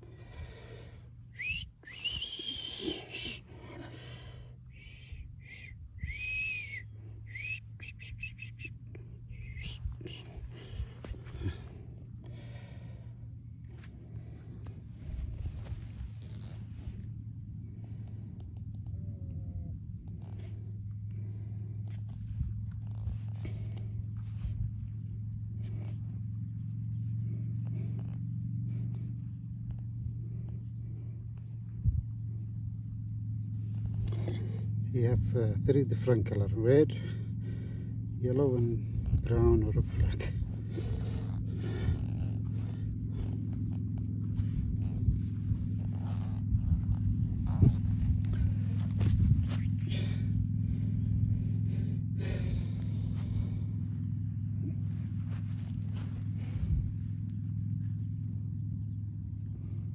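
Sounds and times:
faint rustles: 0.0s - 59.9s
low mechanical hum: 0.0s - 59.9s
person whistling: 1.3s - 3.4s, 4.7s - 8.8s, 9.4s - 10.3s.

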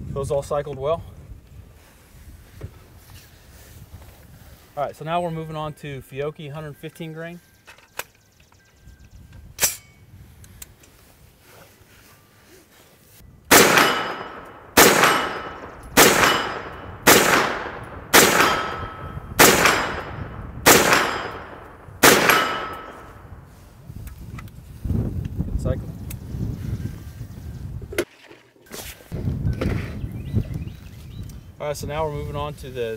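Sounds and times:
carbine gunshots: 13.5s - 23.2s
steel target ringing: 13.5s - 23.3s.

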